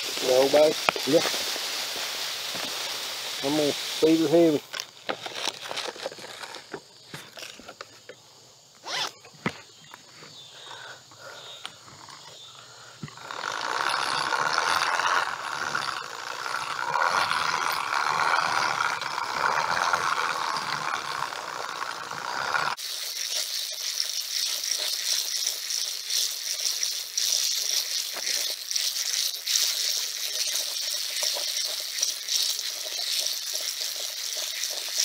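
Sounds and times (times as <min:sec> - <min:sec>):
walking through rustling grass: 0:00.0 - 0:05.4
hissy crackle: 0:00.0 - 0:07.6, 0:13.1 - 0:35.0.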